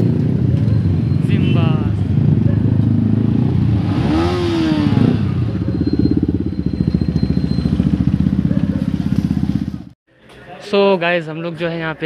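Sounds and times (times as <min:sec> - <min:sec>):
motorcycle engine revving: 0:00.0 - 0:10.0
motorcycle idling: 0:00.0 - 0:10.0.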